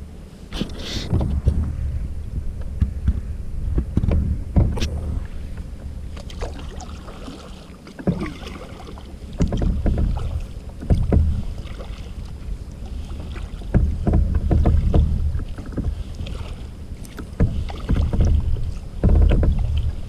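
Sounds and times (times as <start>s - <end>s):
low rumble: 0.0s - 7.3s
paddle splashing in water: 2.8s - 20.0s.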